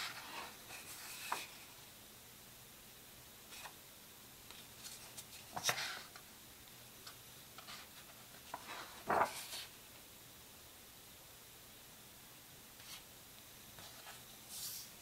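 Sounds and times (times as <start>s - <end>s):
paper pages rustling: 0.0s - 1.7s, 4.5s - 6.2s, 7.6s - 9.7s.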